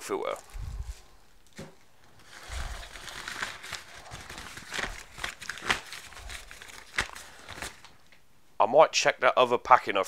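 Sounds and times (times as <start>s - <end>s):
packing paper crinkling: 0.2s - 8.1s.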